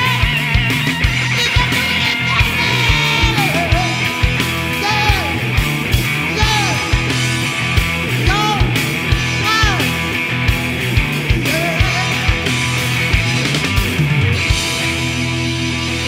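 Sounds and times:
bass guitar: 0.0s - 16.0s
distorted electric guitars: 0.0s - 16.0s
man singing: 1.2s - 5.5s, 6.3s - 7.2s, 8.2s - 10.0s, 11.4s - 12.7s.

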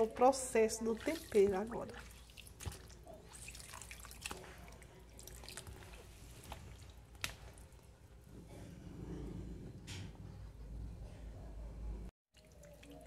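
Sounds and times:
water splashing in a bowl: 0.8s - 7.8s, 12.3s - 13.0s.

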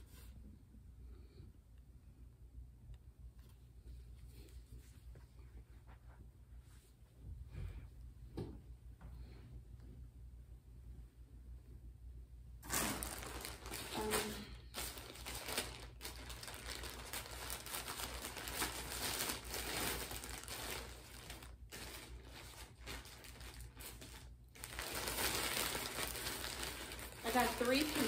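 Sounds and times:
packaging crinkling: 12.6s - 28.0s.

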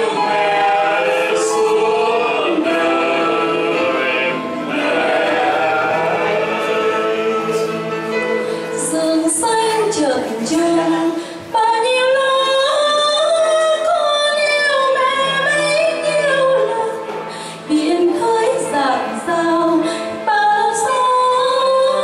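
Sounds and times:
singer breathing: 8.4s - 8.8s, 17.2s - 17.7s, 19.8s - 20.2s.

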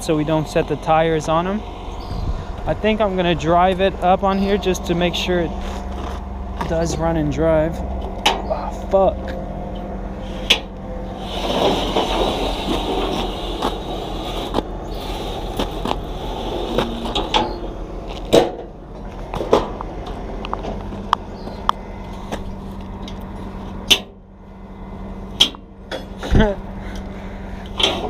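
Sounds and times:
steady low hum: 0.0s - 28.0s
metal ramp scraping slide: 10.1s - 18.7s
metal clanks and knocks: 16.6s - 21.0s, 25.4s - 26.5s.

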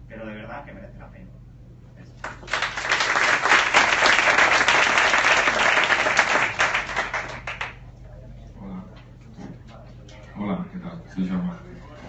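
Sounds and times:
audience applauding: 2.2s - 7.8s.

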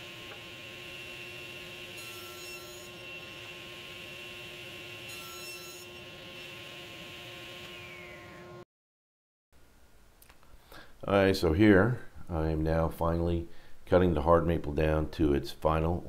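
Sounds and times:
saw cutting through wood: 0.0s - 8.4s
table saw humming: 0.0s - 8.6s.

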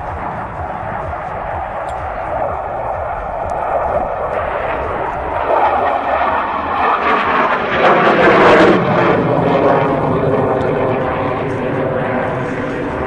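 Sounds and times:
fighter jet roaring overhead: 0.0s - 13.0s.

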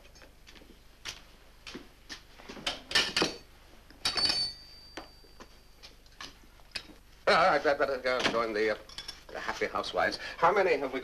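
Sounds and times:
crockery and cutlery clattering: 2.7s - 5.4s
china clink with high ring: 4.0s - 5.8s.

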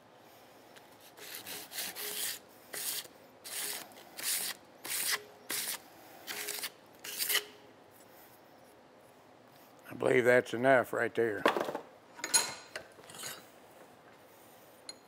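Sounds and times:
abrasive paper scraping steel: 1.0s - 7.5s.

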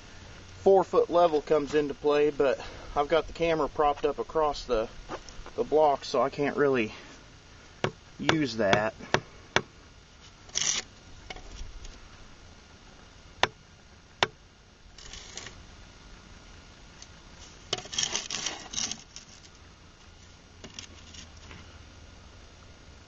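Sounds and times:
spirit level scraping on block: 10.2s - 11.7s, 15.0s - 15.6s, 17.4s - 19.6s, 20.2s - 21.6s.

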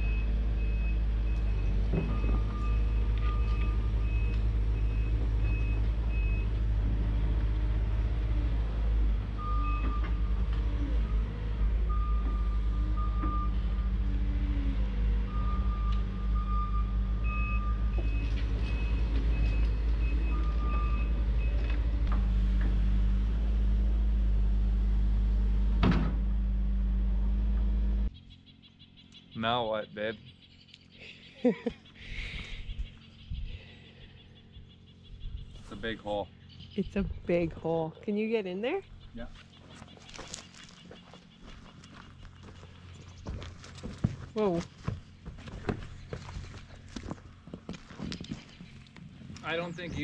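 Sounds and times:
excavator diesel engine running: 0.0s - 31.3s, 31.9s - 50.0s
short high alarm beeps: 15.3s - 21.2s.

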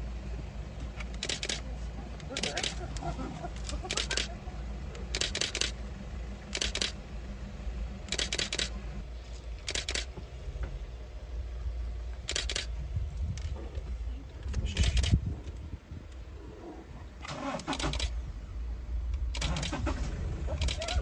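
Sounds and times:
low steady hum: 0.0s - 21.0s
camera shutter clicking bursts: 1.2s - 1.6s, 2.3s - 2.8s, 3.8s - 4.3s, 5.1s - 5.8s, 6.5s - 7.0s, 8.1s - 8.7s, 9.6s - 10.1s, 12.3s - 12.7s, 17.6s - 18.2s, 19.4s - 19.8s, 20.6s - 21.0s.

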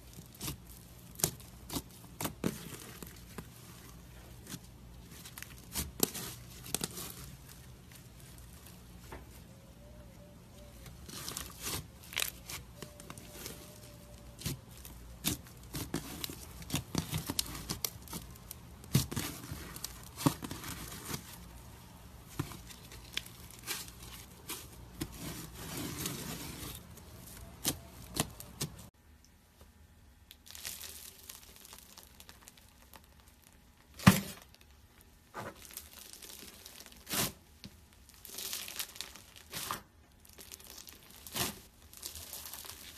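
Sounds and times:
slime crackling and popping: 0.0s - 8.7s, 10.9s - 21.4s, 30.2s - 42.9s.

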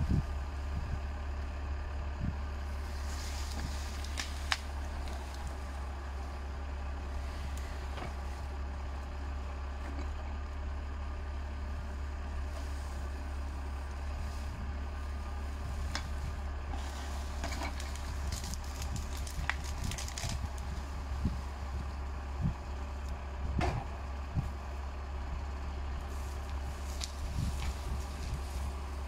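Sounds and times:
tractor diesel engine running: 0.0s - 29.0s
branches crackling and snapping: 2.6s - 9.4s, 12.4s - 23.2s, 24.4s - 29.0s.

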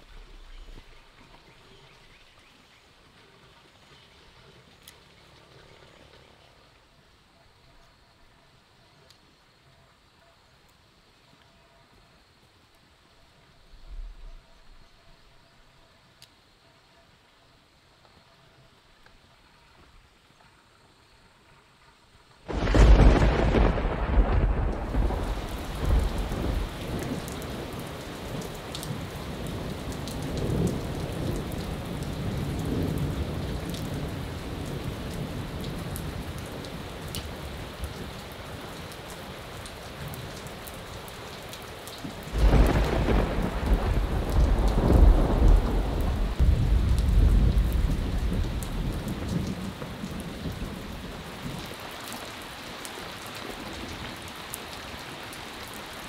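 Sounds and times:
heavy rain: 0.0s - 16.5s, 18.7s - 56.0s
thunder rumbling: 22.5s - 38.6s, 42.2s - 51.7s.

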